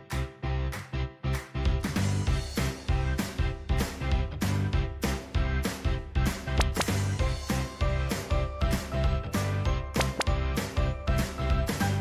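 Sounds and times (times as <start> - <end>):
upbeat music with drum beat: 0.0 - 12.0.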